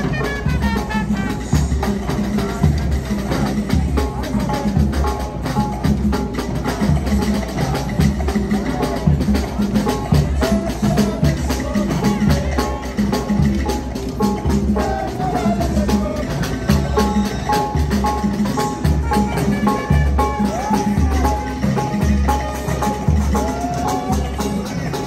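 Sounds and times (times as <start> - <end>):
music with steady beat: 0.0 - 25.0.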